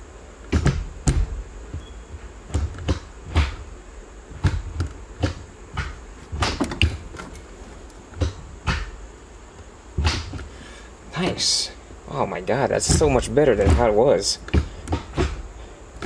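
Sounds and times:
gear lever clicking and clunking: 4.4s - 8.9s, 12.7s - 15.4s.

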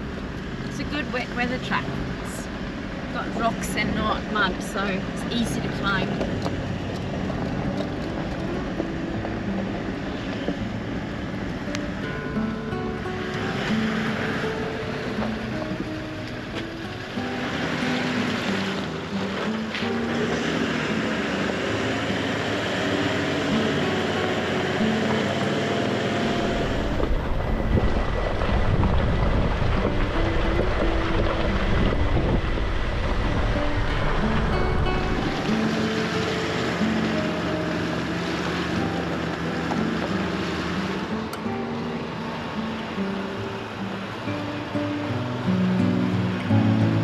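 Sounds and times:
diesel engine under load: 0.0s - 47.0s
soft music notes: 0.0s - 47.0s
tyre and road rumble: 0.0s - 47.0s
vehicle running noise: 0.0s - 47.0s.

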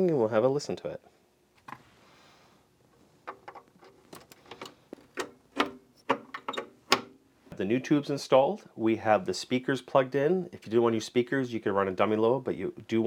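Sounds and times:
vacuum tubes clicking into sockets: 3.3s - 7.1s.

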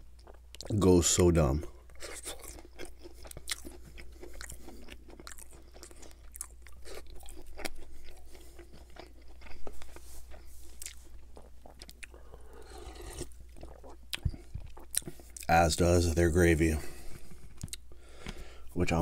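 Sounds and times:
crunchy chewing: 1.8s - 15.5s.

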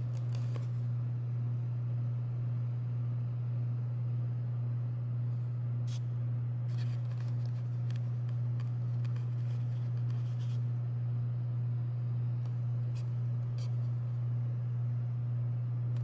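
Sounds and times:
turntable motor hum: 0.0s - 16.0s.

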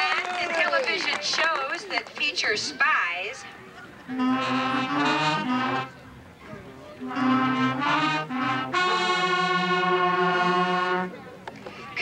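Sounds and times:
marching band brass chords: 4.1s - 6.1s, 6.9s - 11.2s.

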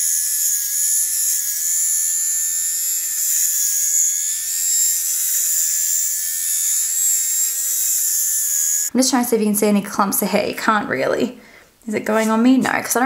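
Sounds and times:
electric razor buzzing: 0.0s - 8.9s.

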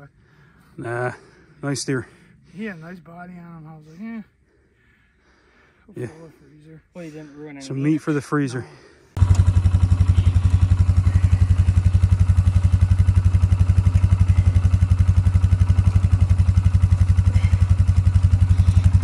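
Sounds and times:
atv engine idling: 9.1s - 19.0s.

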